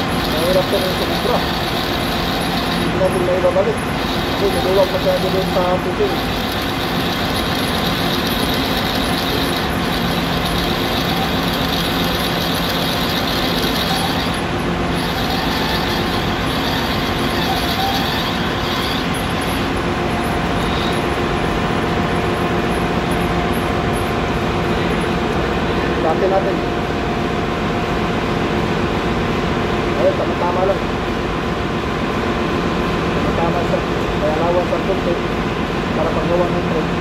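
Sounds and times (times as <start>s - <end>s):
metal lathe humming: 0.0s - 27.0s.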